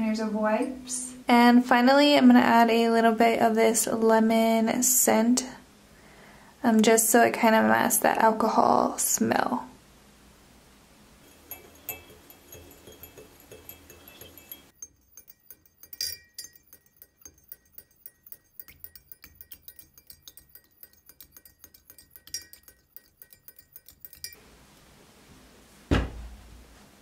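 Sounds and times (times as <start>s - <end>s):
metal whisk clinking on glass: 11.2s - 24.4s.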